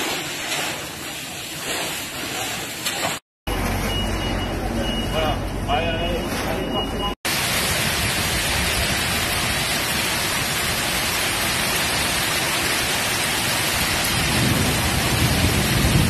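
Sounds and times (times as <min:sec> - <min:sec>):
hail and rain hammering: 0:07.3 - 0:16.0.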